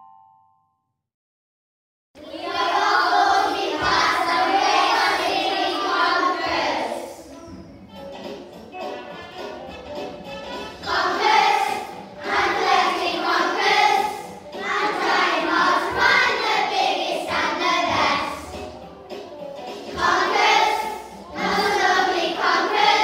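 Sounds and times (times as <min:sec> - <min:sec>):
children singing together: 0:02.2 - 0:07.4, 0:10.7 - 0:18.8, 0:19.7 - 0:23.0.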